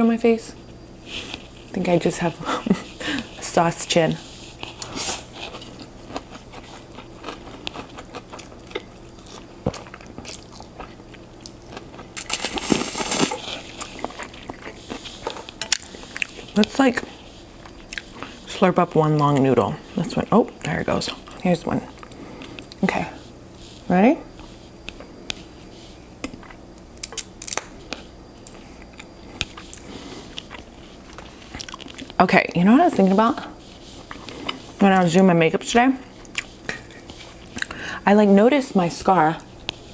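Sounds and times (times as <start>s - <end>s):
chewing with wet clicks: 4.6s - 12.1s, 22.0s - 22.8s, 26.2s - 32.2s, 36.2s - 37.8s.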